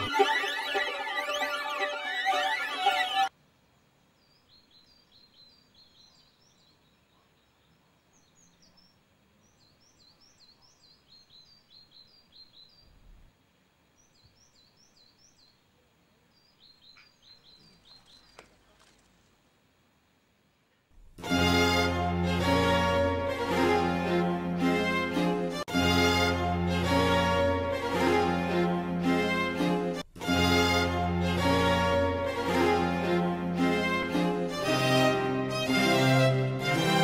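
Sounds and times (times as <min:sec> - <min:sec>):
faint high bird chirps: 0:13.9 - 0:18.9.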